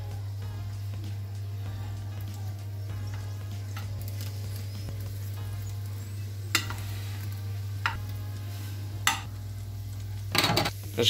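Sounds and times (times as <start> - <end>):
hot fat sizzling: 0.0 - 11.0
steady low hum: 0.0 - 11.0
spatula squishing potatoes: 0.4 - 11.0
spatula clinking against glass: 9.1 - 9.3.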